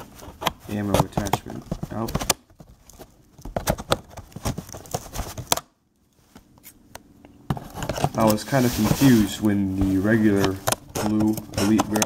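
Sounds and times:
cardboard scraping and knocking: 7.5 - 12.0.

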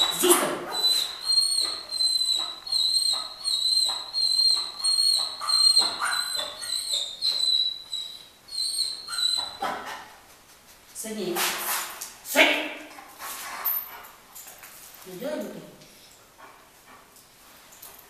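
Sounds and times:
dog whining: 0.0 - 10.1.

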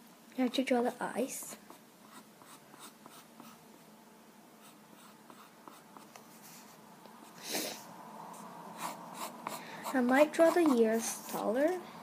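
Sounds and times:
pencil scratching on paper: 1.7 - 3.6, 4.6 - 6.8, 8.8 - 11.5.

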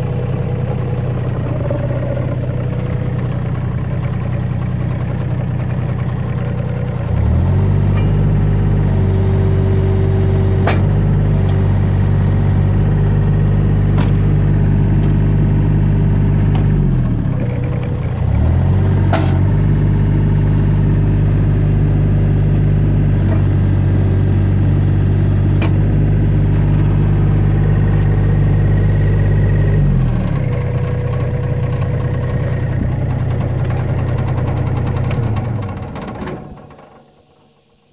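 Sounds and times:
diesel excavator engine revving: 0.0 - 37.5.

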